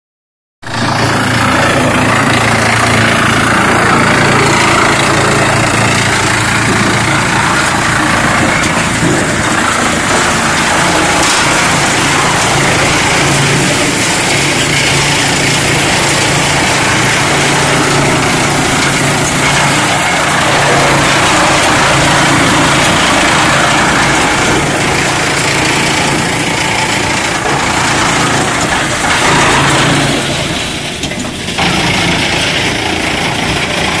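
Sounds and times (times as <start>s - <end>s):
wood chipper chipping wood: 0.6s - 34.0s.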